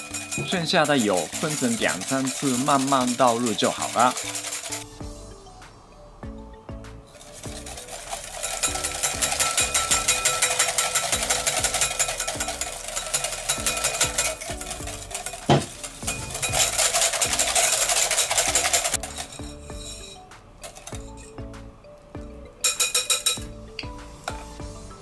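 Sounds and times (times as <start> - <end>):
whisk scraping glass bowl: 0.0 - 4.9, 7.2 - 21.2.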